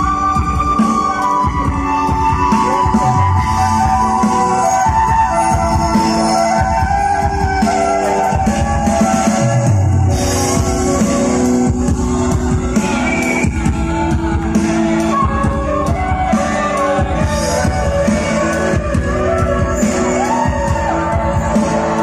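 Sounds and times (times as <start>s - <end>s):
bamboo flute melody: 0.0s - 22.0s
drums: 0.0s - 22.0s
keyboard: 0.0s - 22.0s
crowd shouting: 19.4s - 22.0s.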